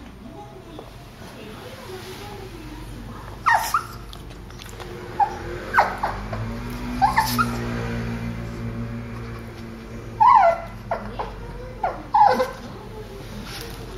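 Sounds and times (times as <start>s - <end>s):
small dog whimpering: 3.4s - 4.1s, 7.0s - 7.6s, 10.2s - 12.8s.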